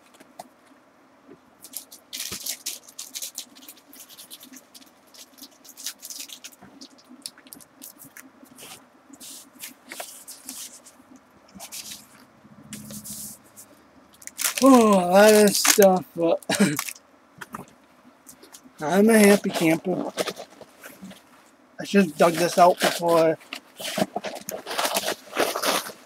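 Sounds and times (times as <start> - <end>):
packaging rustling and crinkling: 1.6 - 8.8, 14.2 - 16.0, 18.3 - 21.5, 22.2 - 26.0.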